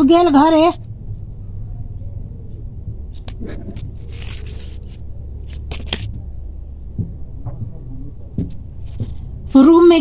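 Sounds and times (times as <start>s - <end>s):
low steady hum: 0.0s - 10.0s
cloth rustling: 3.4s - 6.1s.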